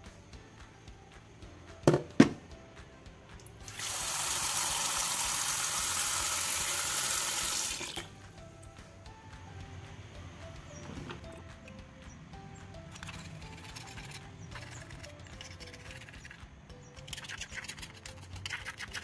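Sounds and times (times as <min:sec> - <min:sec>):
tap water pouring into bowl: 0:03.6 - 0:08.2.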